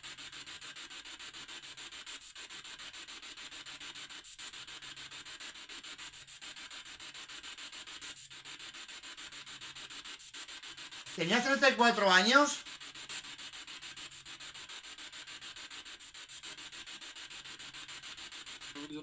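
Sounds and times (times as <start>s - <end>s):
pulsing static hiss: 11.2s - 12.7s.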